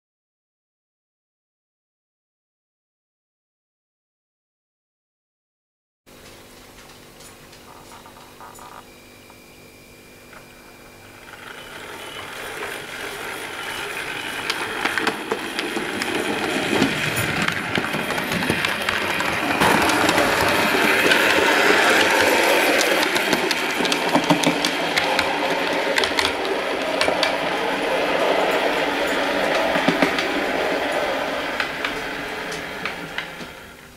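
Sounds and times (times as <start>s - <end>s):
model train motor rumble: 10.3s - 33.9s
clicks over rail joints: 11.3s - 33.7s.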